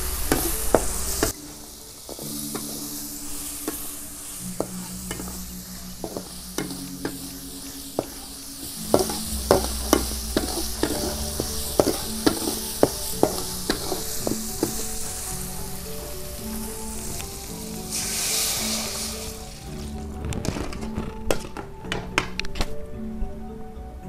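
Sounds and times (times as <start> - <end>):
vegetables sizzling in hot oil: 0.0 - 20.8
metal spatula scraping wok: 0.0 - 22.2.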